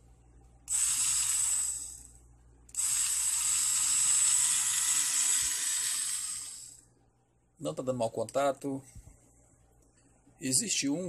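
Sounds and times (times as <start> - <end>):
small electric motor whining: 0.7 - 2.1, 2.7 - 6.8.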